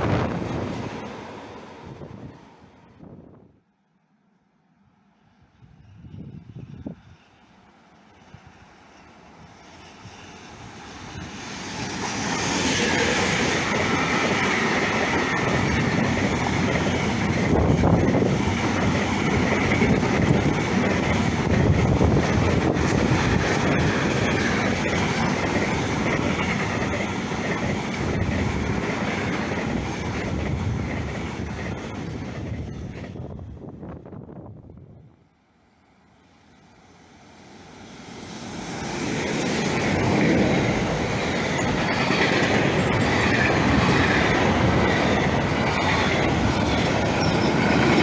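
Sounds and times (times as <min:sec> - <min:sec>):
freight train rumbling past: 0:00.0 - 0:03.8, 0:04.8 - 0:48.0
train wheel clicks: 0:11.8 - 0:33.2, 0:39.2 - 0:48.0.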